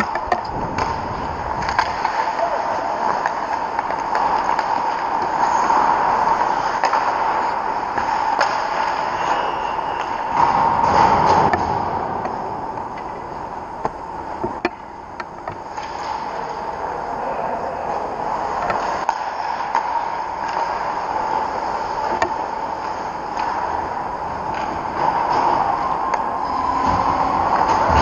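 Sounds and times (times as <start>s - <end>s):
skate blades scraping ice: 0.0s - 11.8s
sticks and puck clicking: 0.0s - 13.2s, 13.8s - 16.6s, 18.6s - 28.0s
steady rink hum: 0.0s - 28.0s.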